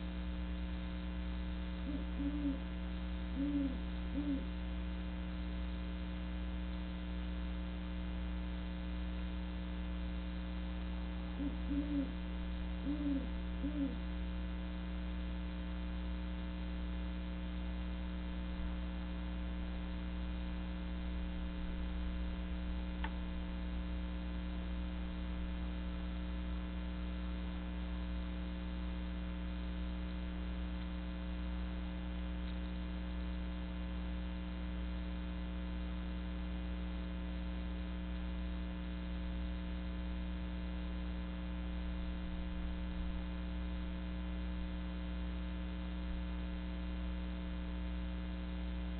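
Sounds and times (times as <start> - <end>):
electrical mains hum: 0.0 - 48.9
faint click: 23.0 - 23.2, 32.4 - 32.8.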